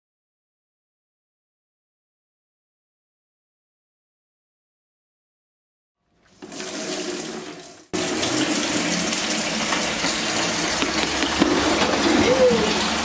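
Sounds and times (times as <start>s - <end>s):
tap water filling bucket: 6.2s - 13.0s.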